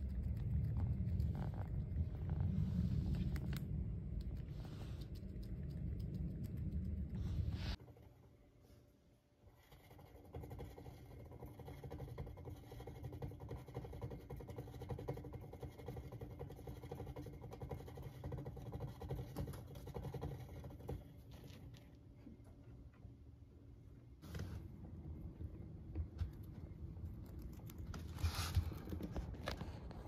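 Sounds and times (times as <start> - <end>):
hamster running on plastic wheel: 9.6 - 21.6.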